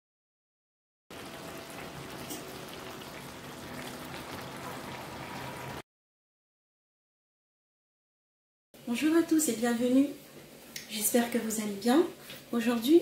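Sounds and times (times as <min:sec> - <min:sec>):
stew bubbling in a pan: 0:01.1 - 0:05.8.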